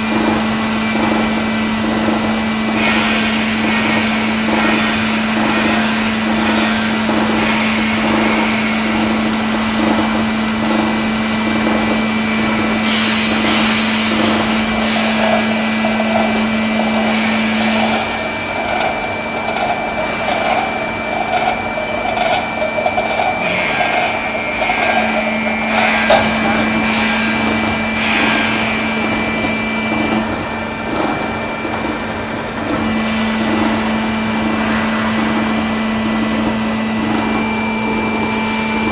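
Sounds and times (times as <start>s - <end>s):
machinery humming: 0.0s - 38.9s
water jets hissing: 0.1s - 31.1s.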